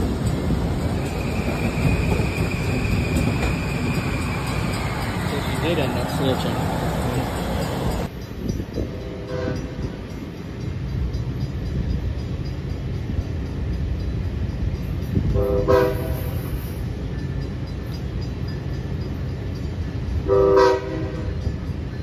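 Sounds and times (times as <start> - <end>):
train horn toots: 8.8 - 9.8, 15.3 - 16.5, 20.3 - 21.4.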